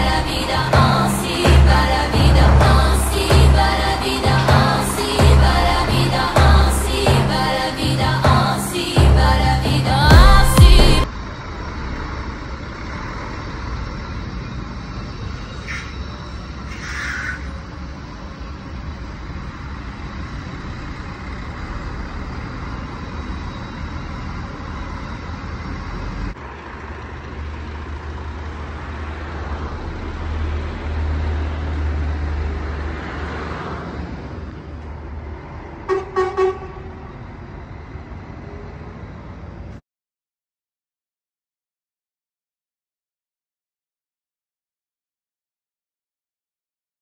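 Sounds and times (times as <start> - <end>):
truck engine rumble: 0.0 - 39.8
truck horn toots: 35.8 - 37.1.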